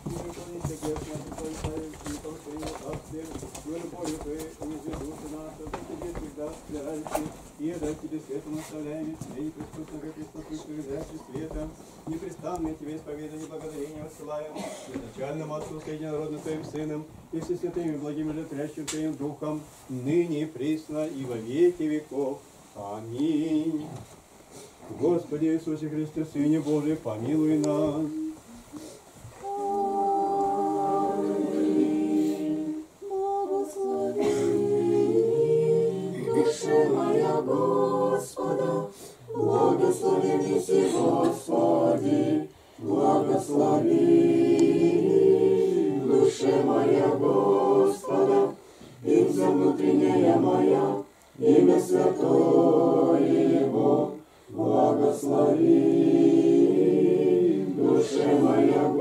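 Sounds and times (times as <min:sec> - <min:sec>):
women singing chant: 0:27.6 - 0:59.0.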